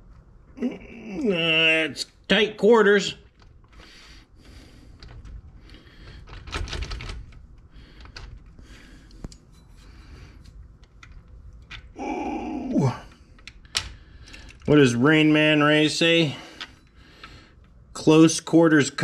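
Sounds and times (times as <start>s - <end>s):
person grunting: 0.6s - 1.5s, 12.0s - 13.1s
metallic clicks and scraping: 4.9s - 12.0s.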